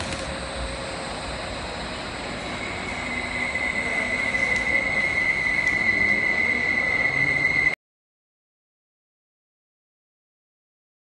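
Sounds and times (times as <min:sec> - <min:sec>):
machinery whine: 0:00.0 - 0:07.8.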